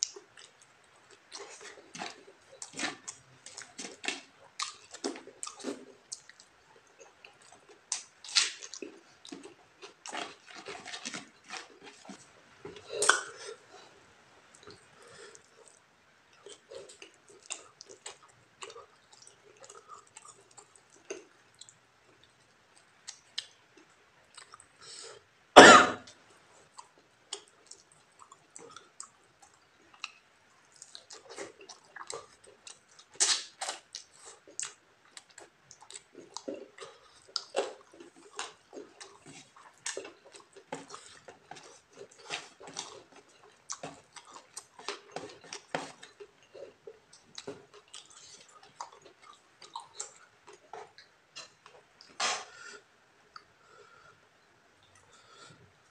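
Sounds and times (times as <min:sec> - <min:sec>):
wet chewing and lip-smacking: 0:00.0 - 0:13.4, 0:14.5 - 0:24.8, 0:26.6 - 0:52.5
cough-like burst: 0:25.6 - 0:26.1.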